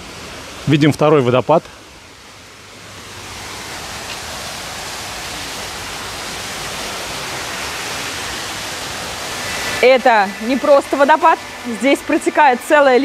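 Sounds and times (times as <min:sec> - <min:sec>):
waterfall pouring: 0:00.0 - 0:13.0.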